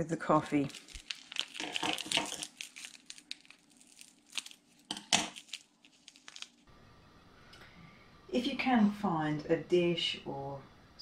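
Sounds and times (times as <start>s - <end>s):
coffee sachet crinkling: 0.5s - 6.7s.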